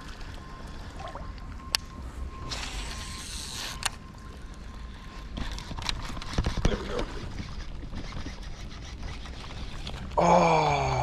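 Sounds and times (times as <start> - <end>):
wind and moving water: 0.0 - 10.2
fishing reel clicks: 2.5 - 4.0.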